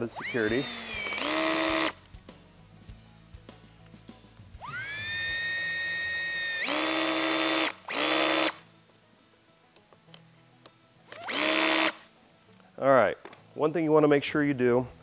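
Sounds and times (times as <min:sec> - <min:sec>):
cordless drill whining: 0:00.0 - 0:02.0, 0:04.6 - 0:08.6, 0:11.1 - 0:12.0.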